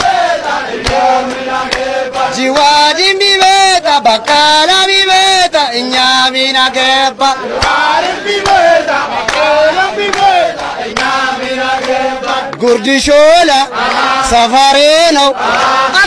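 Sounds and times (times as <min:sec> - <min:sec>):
sharp hand claps: 0:00.0 - 0:05.4, 0:07.5 - 0:12.7, 0:13.8 - 0:14.4
men chanting in long held notes: 0:00.0 - 0:16.0.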